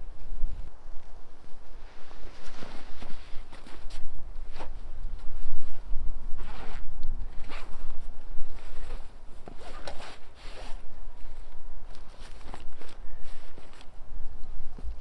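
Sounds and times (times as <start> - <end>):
fabric rustling: 1.7 - 14.0
backpack zipper pulled open: 6.4 - 7.7.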